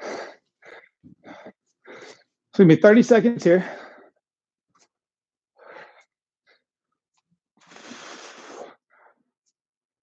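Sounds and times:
man breathing hard: 0.0s - 2.4s, 3.6s - 4.2s, 5.5s - 6.7s.

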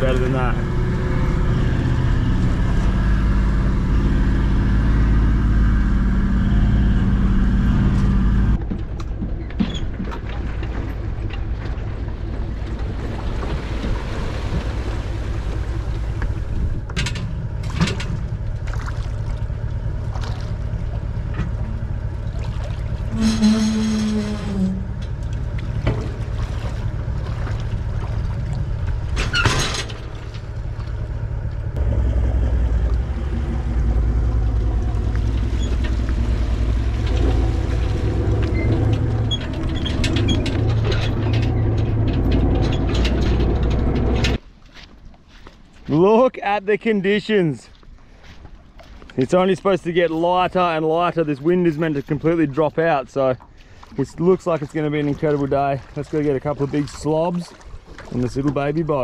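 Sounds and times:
vehicle engine running: 0.0s - 44.4s
boat and trailer knocks: 8.0s - 19.4s, 20.0s - 44.4s.

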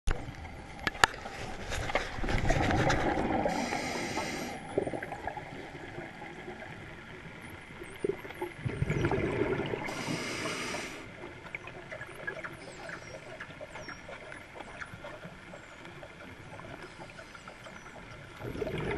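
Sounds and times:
exhaled bubbles rumbling: 0.1s - 15.8s, 16.4s - 18.9s
regulator inhale hiss: 3.4s - 4.8s, 9.8s - 11.2s.

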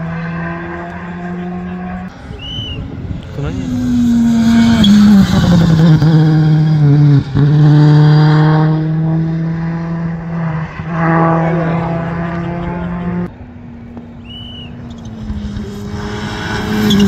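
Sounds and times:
rally car engine at high revs: 0.0s - 2.2s, 3.2s - 13.3s, 14.7s - 17.0s.

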